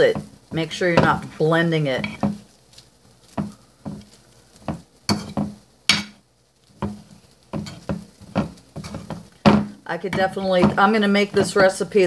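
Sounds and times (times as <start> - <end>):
potato masher knocking on ceramic: 6.8 - 11.6.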